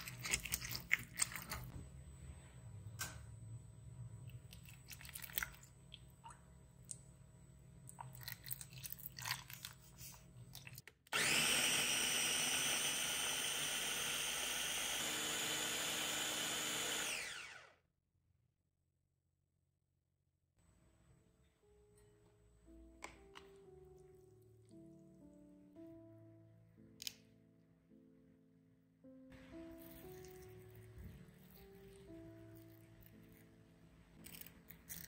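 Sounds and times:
food chopper motor whining: 0:11.1 - 0:17.8.

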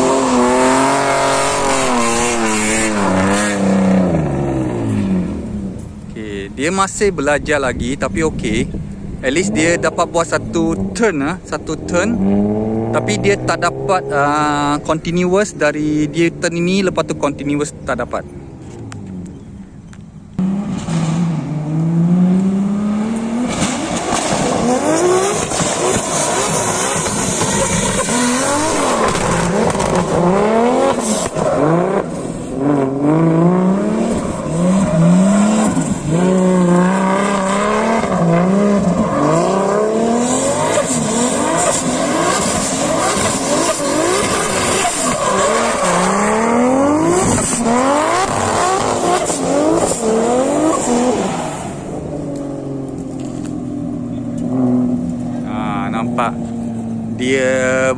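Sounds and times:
car engine revving: 0:00.0 - 0:19.6, 0:20.3 - 0:57.9
tyres squealing on asphalt: 0:23.3 - 0:32.5, 0:33.8 - 0:52.2.

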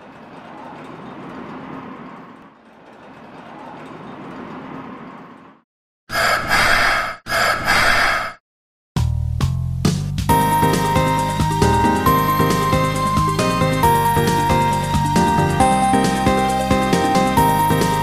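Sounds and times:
loud blaring calls: 0:06.1 - 0:08.4.

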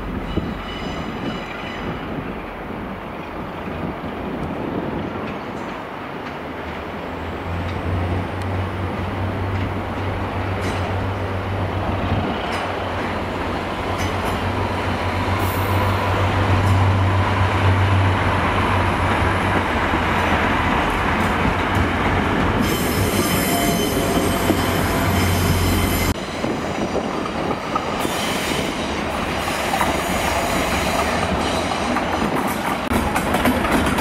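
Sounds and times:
diesel locomotive engine drone: 0:02.0 - 0:34.0
wheels clacking over rail joints: 0:05.2 - 0:23.6, 0:29.0 - 0:34.0.

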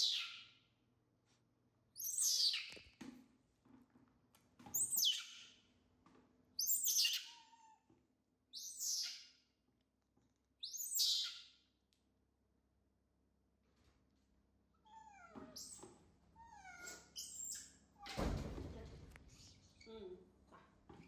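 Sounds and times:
baby macaque high-pitched calls: 0:00.0 - 0:00.5, 0:06.6 - 0:07.8, 0:08.6 - 0:09.3, 0:10.6 - 0:11.5, 0:16.4 - 0:18.2.

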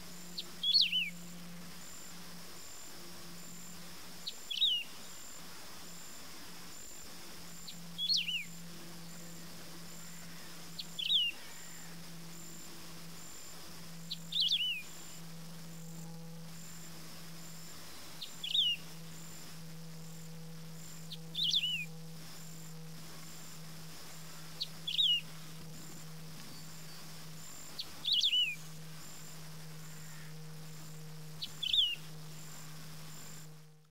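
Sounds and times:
bird singing: 0:00.2 - 0:01.5, 0:03.4 - 0:05.4, 0:07.5 - 0:12.6, 0:14.0 - 0:16.0, 0:17.8 - 0:19.1, 0:20.8 - 0:22.0, 0:24.3 - 0:30.5, 0:31.3 - 0:32.6.

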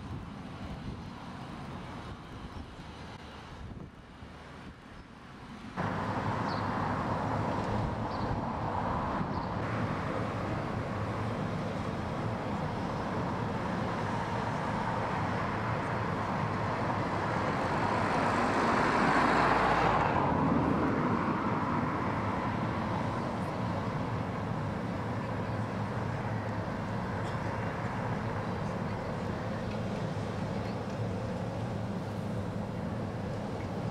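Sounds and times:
distant traffic rumble: 0:00.0 - 0:33.9
vehicle passing: 0:13.3 - 0:24.9.

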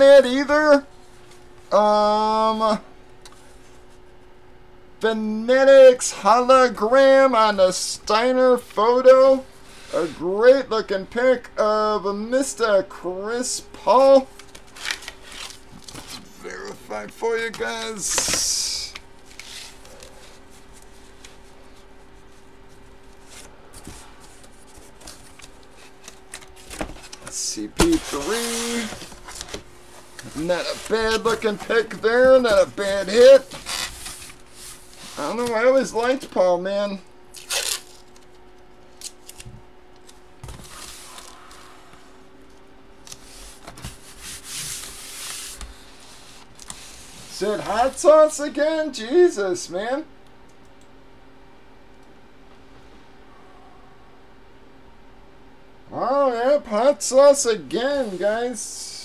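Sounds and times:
low electrical hum: 0:00.0 - 0:59.0
paper rustling: 0:14.4 - 0:16.4, 0:17.5 - 0:36.3
paper print sliding: 0:17.5 - 0:20.4, 0:25.8 - 0:35.6.

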